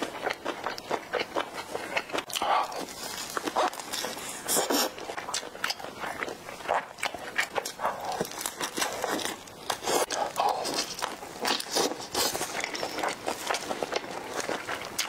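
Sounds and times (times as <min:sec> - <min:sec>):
biting and chewing: 0:00.0 - 0:15.0.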